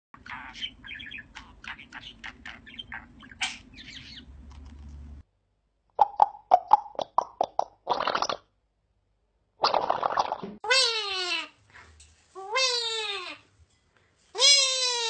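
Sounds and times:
budgerigar chirping and warbling: 0.2 - 4.4.

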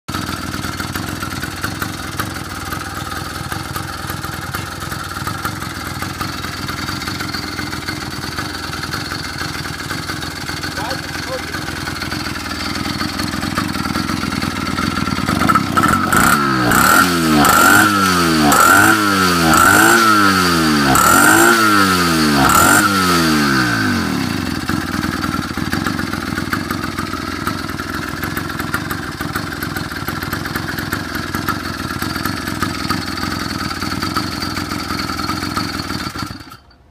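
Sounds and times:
motorized bicycle engine revving: 13.9 - 24.9.

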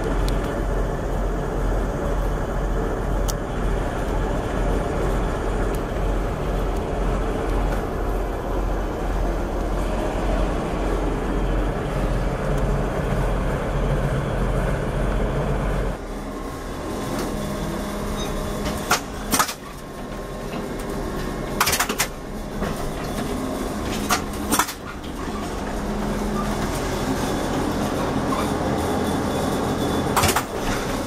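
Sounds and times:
trolleybus motor humming: 0.0 - 31.0
sharp clacks: 18.7 - 19.6, 21.6 - 22.2, 23.9 - 25.0, 30.2 - 30.6.

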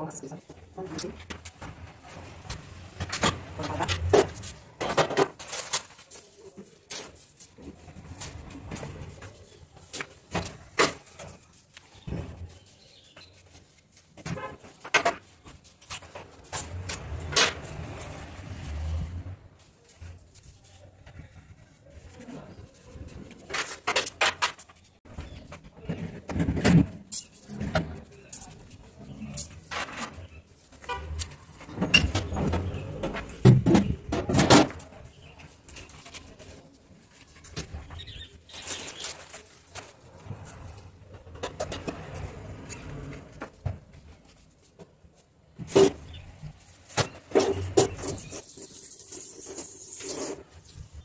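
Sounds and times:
objects knocking and clattering: 0.8 - 11.4, 23.3 - 28.6, 30.9 - 36.5.

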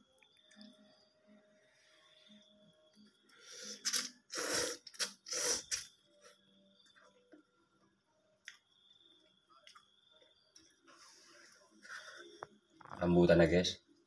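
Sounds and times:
person slurping noodles: 3.5 - 5.9
quiet chewing: 9.6 - 10.7.

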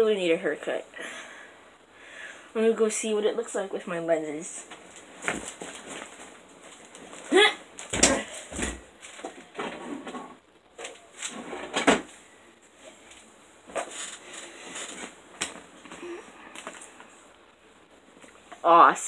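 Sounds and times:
rustling: 4.6 - 17.4
knocks and thuds: 7.9 - 8.9.

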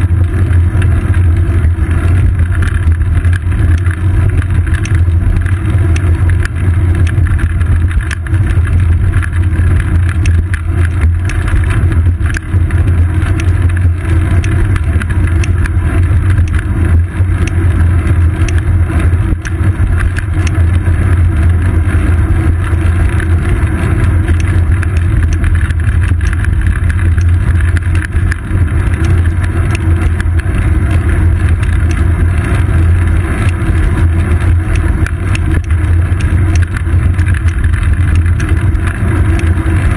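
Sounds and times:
road vibration rumble: 0.0 - 39.9
faint clicks: 10.0 - 12.5.

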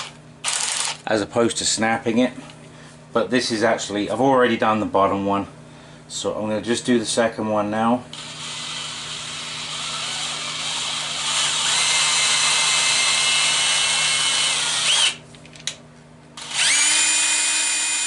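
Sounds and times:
cordless drill motor whining: 0.0 - 1.0, 8.1 - 15.2, 16.4 - 18.0.

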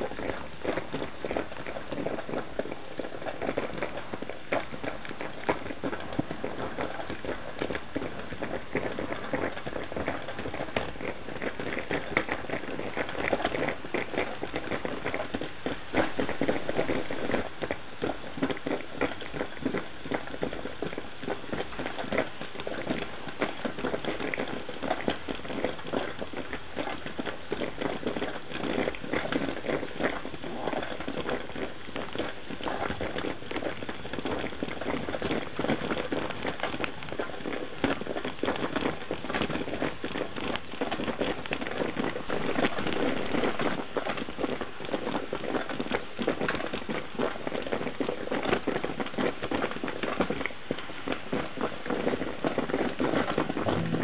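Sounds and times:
coffee percolator bubbling: 0.0 - 38.7.

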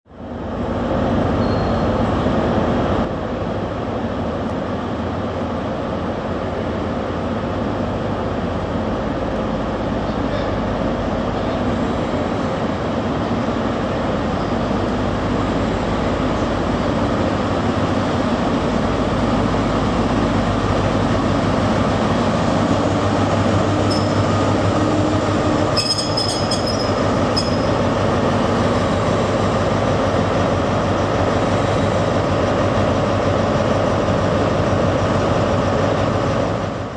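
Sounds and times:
diesel train engine running: 0.1 - 36.9
wheel or brake squeal: 1.4 - 1.9, 23.9 - 24.3, 25.6 - 27.8.

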